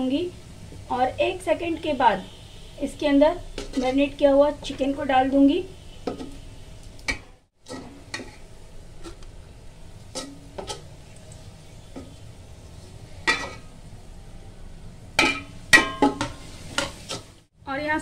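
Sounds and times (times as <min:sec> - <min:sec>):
oil sizzling: 0:00.0 - 0:18.0
spoon scraping a metal pot: 0:03.5 - 0:04.0.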